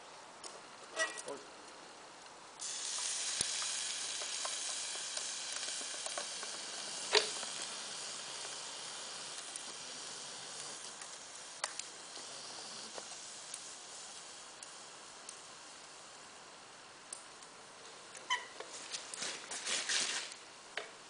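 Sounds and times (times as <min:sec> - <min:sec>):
molten metal hissing and sizzling: 0:00.4 - 0:20.4
small crackles: 0:00.4 - 0:21.0
sharp crack: 0:02.9 - 0:07.7.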